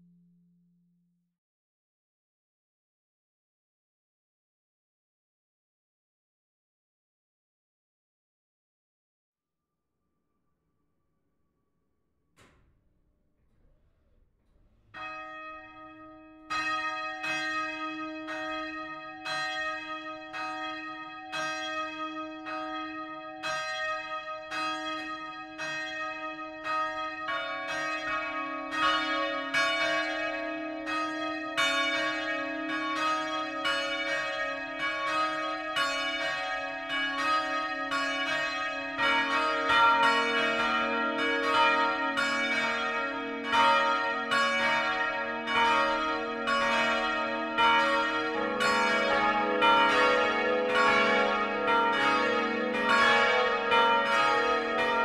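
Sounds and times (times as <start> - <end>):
church bells ringing: 14.9 - 55.0.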